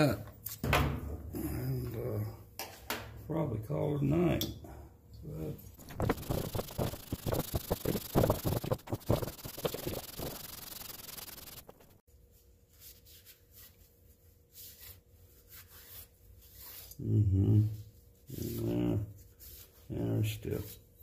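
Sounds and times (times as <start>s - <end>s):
metal rasping on abrasive paper: 5.8s - 11.9s.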